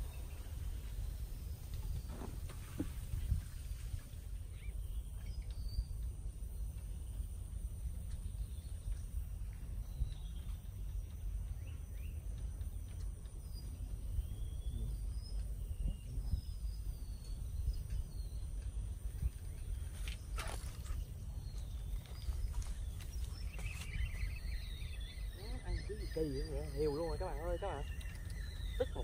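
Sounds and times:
low steady rumble: 0.0s - 29.0s
high insect drone: 18.6s - 29.0s.

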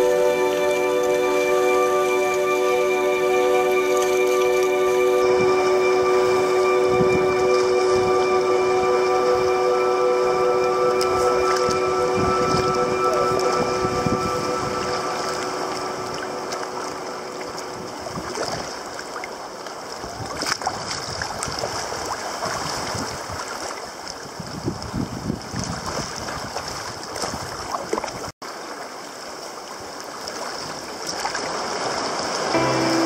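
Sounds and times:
sea water sloshing around rocks: 14.9s - 32.5s.

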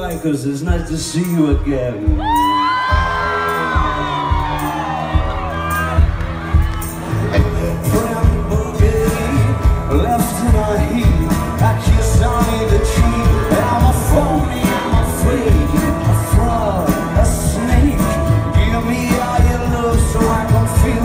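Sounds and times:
steady drum beat: 0.0s - 21.0s
person singing lead vocal: 0.8s - 6.2s, 7.0s - 21.0s
bass guitar: 1.6s - 21.0s
electric guitar: 2.2s - 21.0s.

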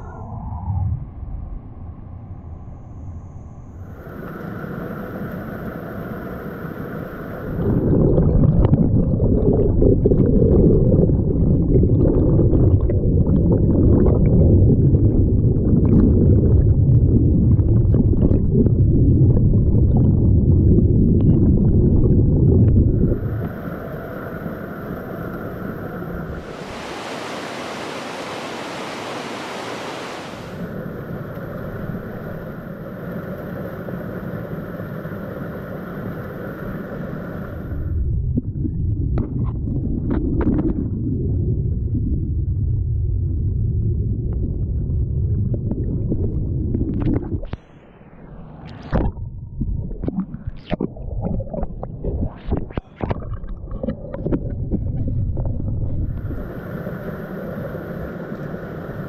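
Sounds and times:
underwater rumble with bubbles: 0.0s - 27.5s, 30.3s - 59.0s
rapids hissing: 4.0s - 7.8s, 23.2s - 37.8s
creek water rushing: 26.2s - 30.8s.

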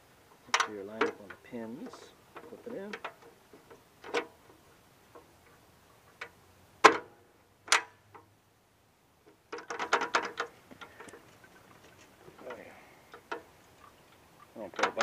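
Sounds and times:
luggage rack clipping onto posts: 6.8s - 7.1s, 7.7s - 8.2s, 9.5s - 11.2s.

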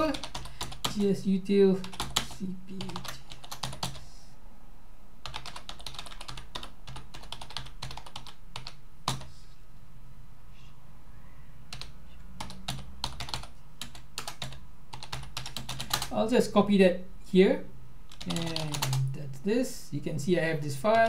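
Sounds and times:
typing on computer keyboard: 0.0s - 1.0s, 1.8s - 4.0s, 5.2s - 9.3s, 11.7s - 16.1s, 18.1s - 19.1s.

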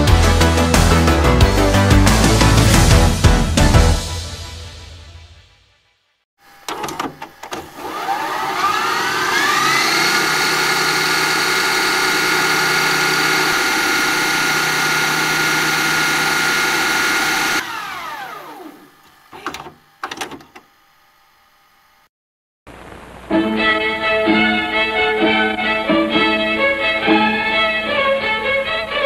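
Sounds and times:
motor whine: 6.4s - 22.1s.

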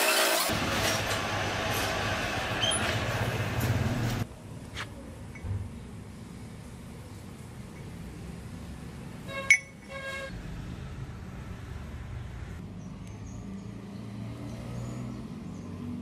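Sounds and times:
vehicle horn toots: 9.3s - 10.4s.

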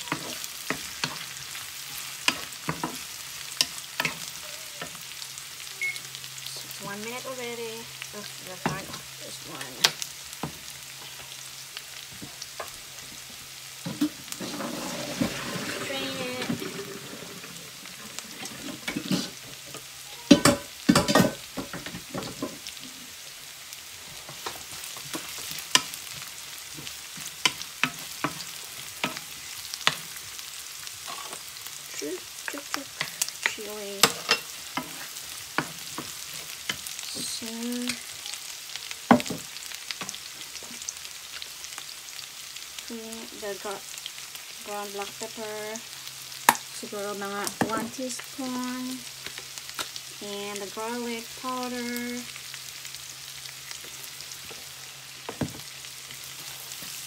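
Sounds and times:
meat sizzling in a skillet: 0.0s - 57.0s
wooden spatula scraping pan: 13.9s - 19.6s.

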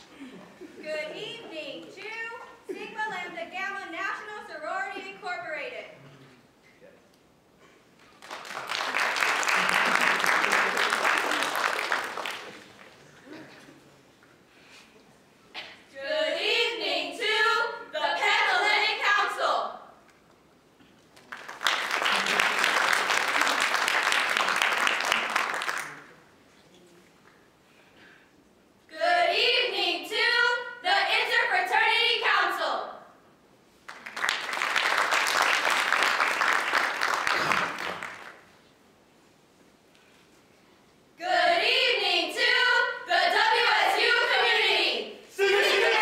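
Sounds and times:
audience applauding: 8.0s - 13.2s, 21.1s - 26.2s, 33.9s - 38.5s
women singing a cappella: 15.9s - 19.8s, 28.9s - 32.9s, 41.2s - 46.0s.

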